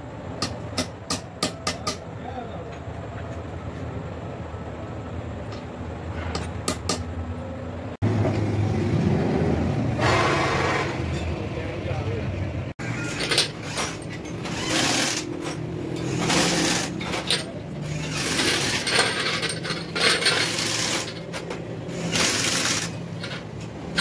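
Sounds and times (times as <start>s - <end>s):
metal valves clinking and scraping: 12.8s - 24.0s.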